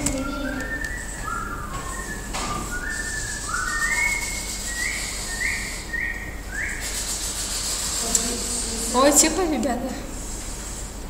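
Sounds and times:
person whistling a tune: 0.0s - 6.9s.

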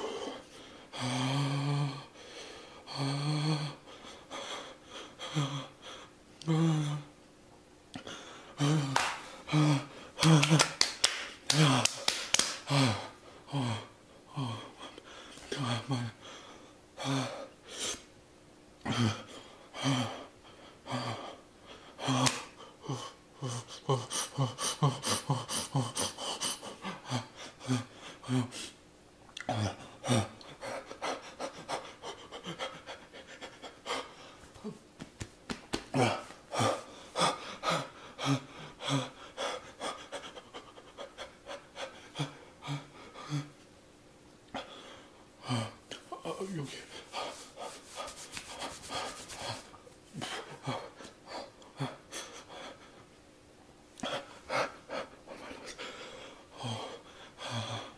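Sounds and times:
man panting rapidly: 2.1s - 6.2s, 18.8s - 28.8s, 29.7s - 34.8s, 35.7s - 43.6s, 46.4s - 53.1s, 54.0s - 57.9s.

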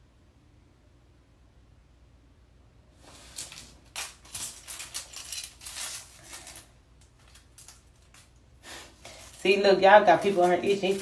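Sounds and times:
metal chains clinking: 3.4s - 6.7s.

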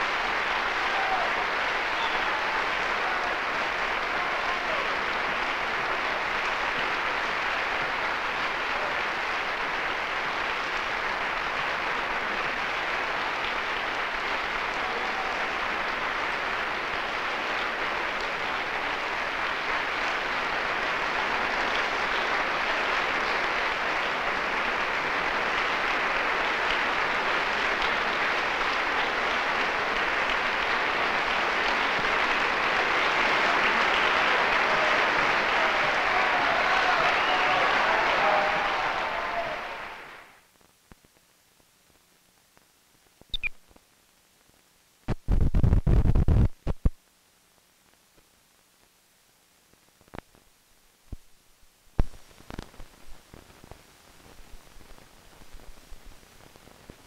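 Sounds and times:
audience applauding: 0.0s - 40.4s.

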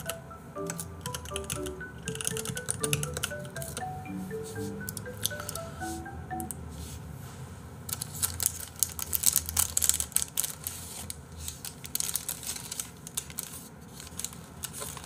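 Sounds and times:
paper wrapper crinkling: 7.9s - 15.0s.

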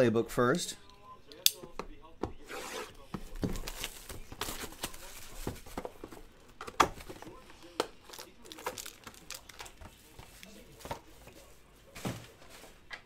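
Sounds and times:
plastic wrap crinkling: 8.0s - 10.6s.

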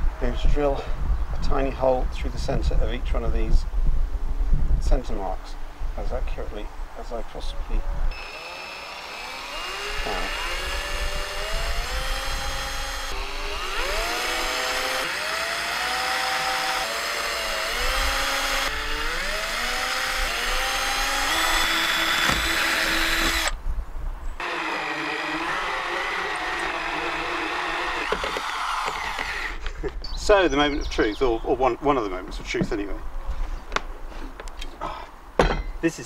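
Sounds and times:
corded drill with hole saw: 8.1s - 23.6s, 24.4s - 29.7s
cordless drill whining: 8.1s - 23.6s, 24.4s - 29.7s.

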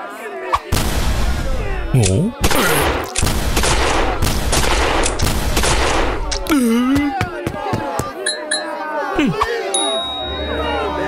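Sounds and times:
rapid gunfire: 2.4s - 6.3s.

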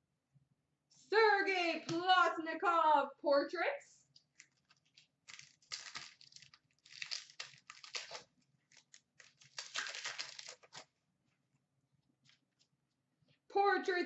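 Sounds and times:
card pack wrappers crinkling: 4.2s - 10.9s
cards being handled: 4.2s - 10.9s.

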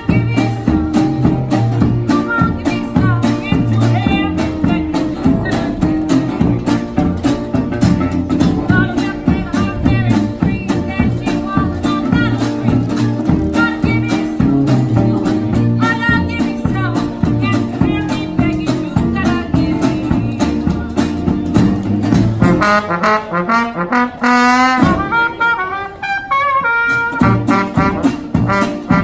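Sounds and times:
strummed guitar: 0.0s - 29.0s
jazz horns playing: 22.2s - 29.0s.

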